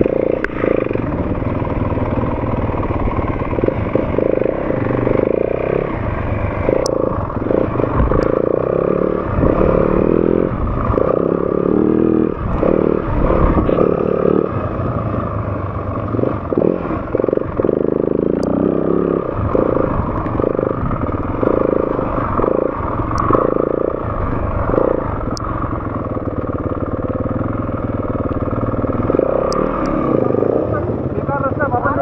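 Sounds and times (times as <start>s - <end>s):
dirt bike engine revving: 0.0s - 32.0s
sharp clicks: 6.7s - 8.4s, 29.1s - 30.0s.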